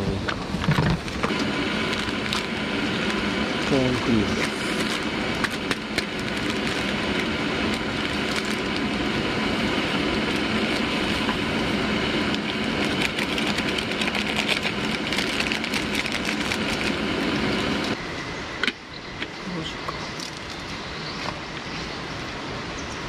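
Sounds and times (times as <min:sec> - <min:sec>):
steady rushing noise: 0:00.0 - 0:23.0
foil packet crinkling and rustling: 0:00.7 - 0:03.8, 0:04.4 - 0:09.0, 0:12.4 - 0:17.0.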